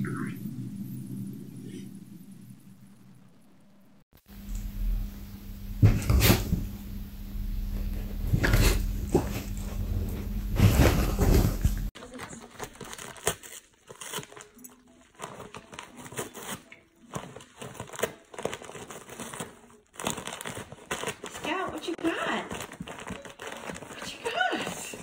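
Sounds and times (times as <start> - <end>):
loud low hum: 0.0 - 11.9
wrapping paper crinkling and tearing: 11.9 - 25.0.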